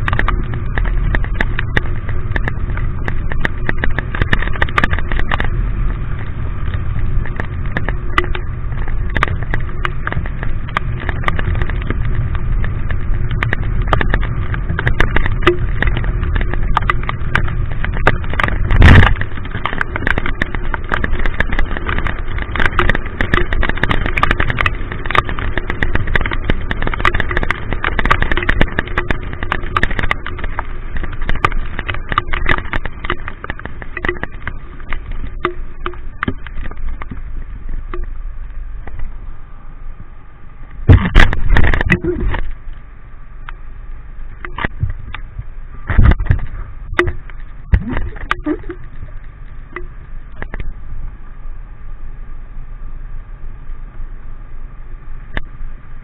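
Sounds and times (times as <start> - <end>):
rain tapping on camera: 0.0 - 51.4, 55.0 - 56.0
engine and wind rumble: 0.0 - 56.0
loud thump: 40.9 - 42.1.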